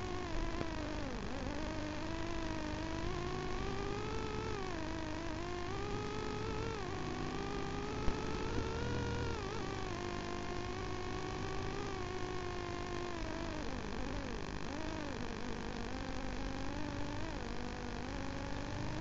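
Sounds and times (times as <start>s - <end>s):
motorcycle engine revving: 2.2s - 13.0s, 18.4s - 19.0s.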